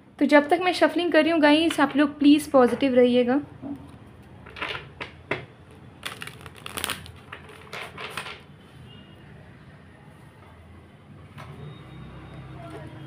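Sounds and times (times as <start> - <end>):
cards shuffling: 6.0 - 8.2.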